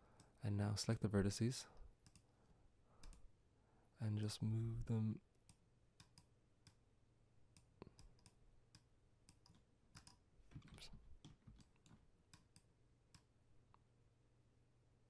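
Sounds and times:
computer mouse clicking: 2.0 - 2.3, 3.0 - 3.2, 5.4 - 6.8, 7.5 - 10.2, 11.2 - 13.3.

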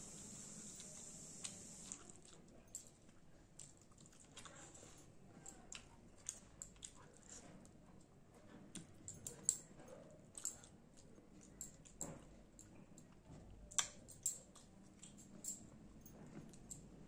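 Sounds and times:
chewing with wet mouth clicks: 0.8 - 4.7, 5.4 - 8.1, 10.3 - 15.3.

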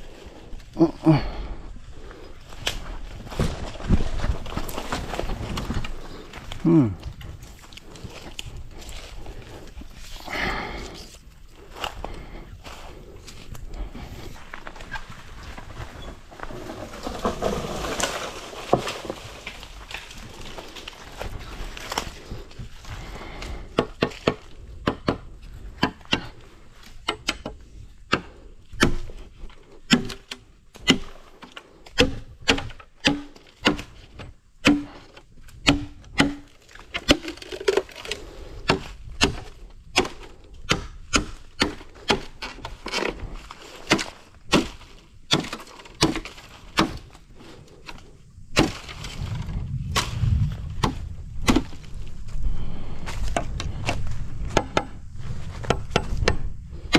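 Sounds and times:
blade chopping bamboo: 29.8 - 34.0, 34.6 - 47.1, 50.8 - 51.8.

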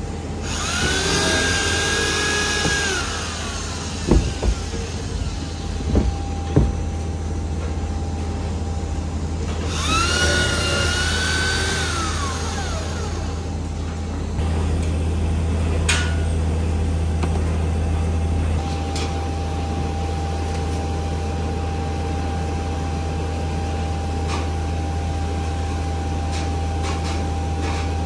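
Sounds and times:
low machine hum: 0.0 - 28.0
power tool whining: 0.4 - 7.0, 9.6 - 13.6
sharp knocks: 4.0 - 5.0, 5.8 - 6.9.

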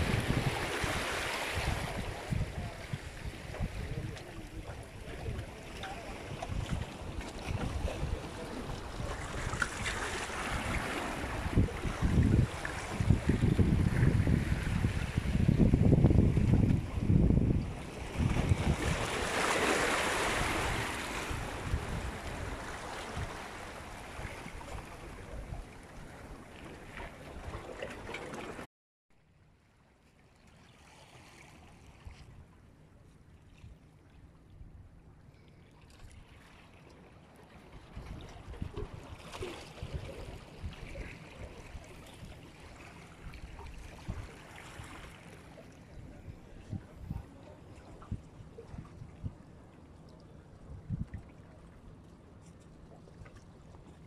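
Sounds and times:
wind buffeting microphone: 0.0 - 4.6, 10.6 - 19.2, 45.9 - 49.5, 50.6 - 51.3
water splashing against boulders: 0.0 - 17.5, 18.1 - 25.0, 26.5 - 28.7
wind rumbling on microphone: 0.0 - 19.4, 20.0 - 27.6, 37.8 - 42.4, 43.1 - 49.6, 50.5 - 51.5.

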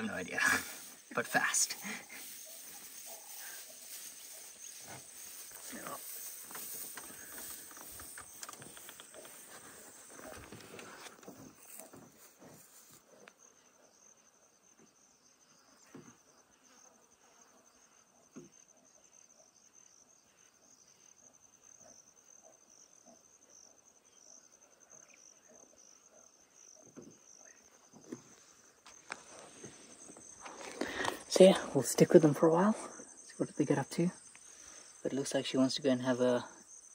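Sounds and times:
insect trilling: 0.0 - 12.0.

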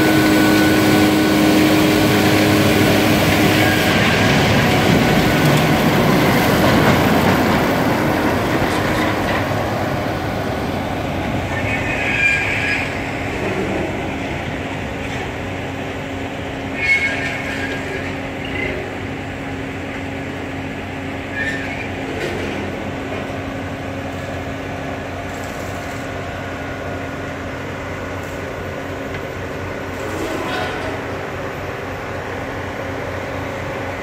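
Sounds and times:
train machinery droning hum: 0.0 - 34.0
metallic squeals: 11.5 - 13.9, 16.7 - 18.9, 21.2 - 22.4, 29.9 - 31.2.

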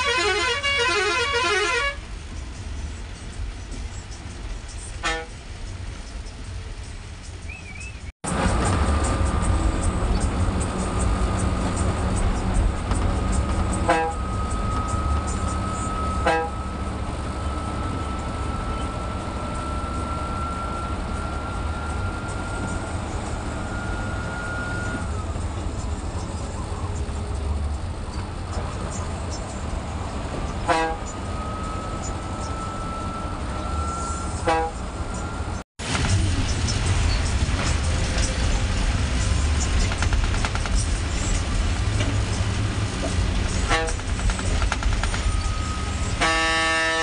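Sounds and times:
short horn toots: 0.0 - 2.0, 13.7 - 15.0, 15.6 - 16.7, 30.7 - 31.8, 33.1 - 35.3, 43.6 - 44.0, 46.1 - 47.0
bus engine running: 0.0 - 47.0.

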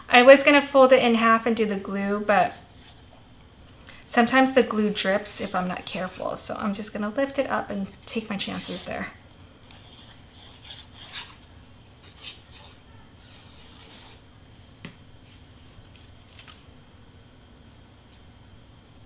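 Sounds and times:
cardstock rustling and scraping: 12.0 - 14.2, 15.2 - 16.7.

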